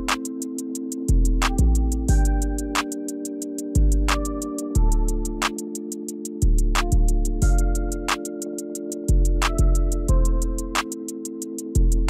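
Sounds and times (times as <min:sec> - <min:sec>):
hi-hat ticks: 0:00.0 - 0:12.0
kick drum: 0:01.1 - 0:02.5, 0:06.4 - 0:07.8, 0:09.1 - 0:10.4, 0:11.8 - 0:12.0.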